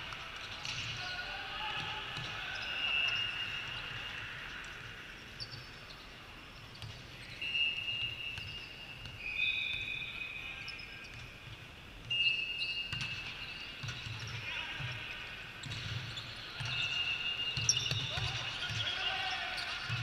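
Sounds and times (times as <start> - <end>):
sneakers squeaking on court: 12.1 - 15.0, 15.6 - 19.0.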